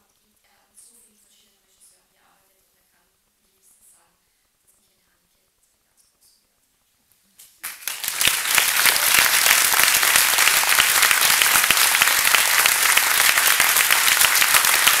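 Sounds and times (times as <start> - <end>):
audience applauding: 7.6 - 15.0.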